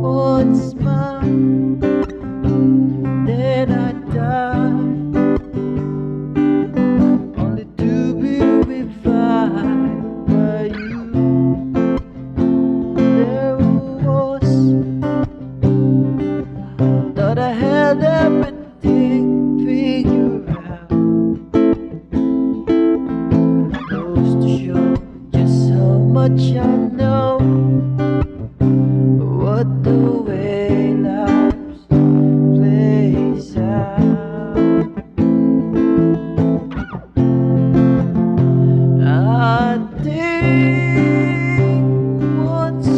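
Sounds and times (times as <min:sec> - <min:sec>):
man singing: 0:00.0 - 0:05.5, 0:06.7 - 0:12.2, 0:12.9 - 0:21.1, 0:23.7 - 0:28.0, 0:29.1 - 0:35.1, 0:38.8 - 0:42.9
acoustic guitar strumming: 0:00.0 - 0:42.9.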